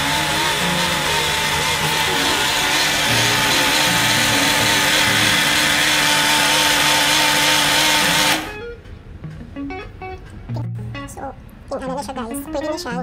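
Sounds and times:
electric blender motor whining: 0.0 - 8.6.

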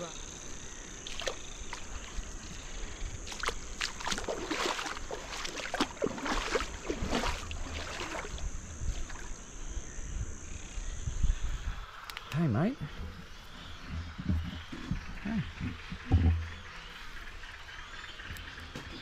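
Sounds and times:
high-pitched insect drone: 0.0 - 13.8
scuffing crunching noises: 1.3 - 8.4.

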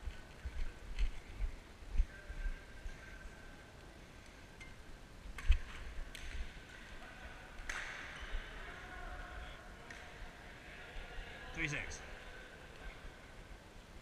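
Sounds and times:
racket hitting shuttlecock: 7.6 - 8.2.

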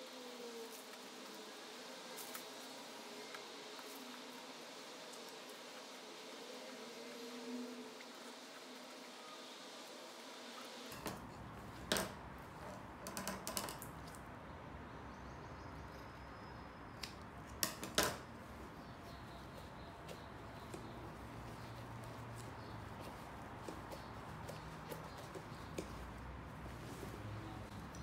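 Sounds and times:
shears snipping rubber: 2.1 - 4.3.

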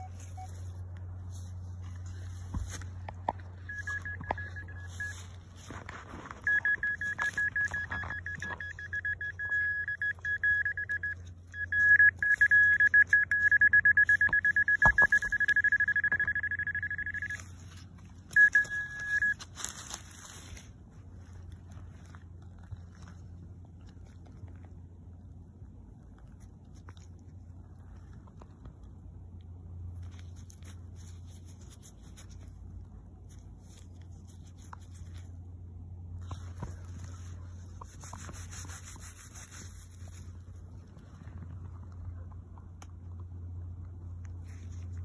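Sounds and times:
metal detector beeping: 0.0 - 0.8, 3.6 - 5.5, 6.2 - 17.7, 18.3 - 19.5.

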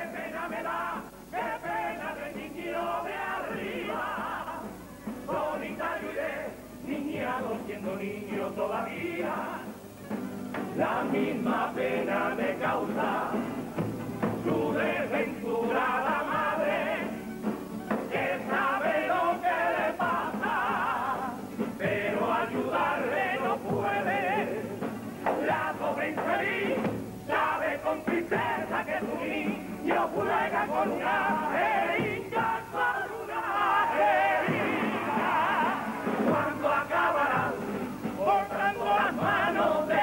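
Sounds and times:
men's chorus singing: 0.0 - 9.8, 10.6 - 40.0
instrumental accompaniment: 9.1 - 24.0.

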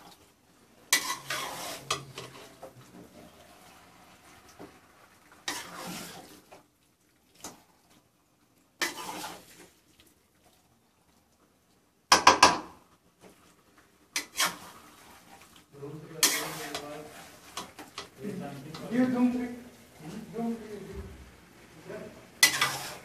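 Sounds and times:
spatula clanking on pan: 0.9 - 2.4, 16.2 - 16.8, 22.4 - 22.9
spatula scraping pan: 0.9 - 6.6, 8.8 - 9.8, 14.1 - 20.6, 22.3 - 23.0.

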